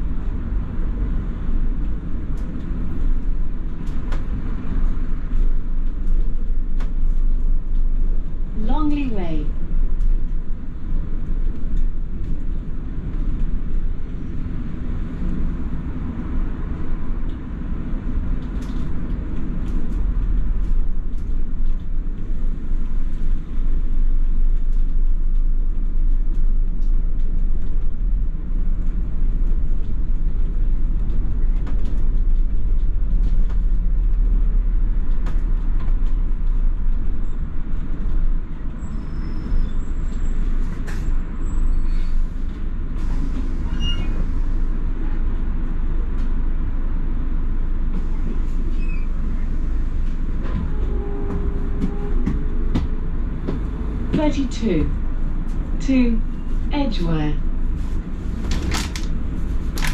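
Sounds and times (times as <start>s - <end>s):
bus engine and road rumble: 0.0s - 59.9s
rattles and clicks: 58.4s - 59.9s.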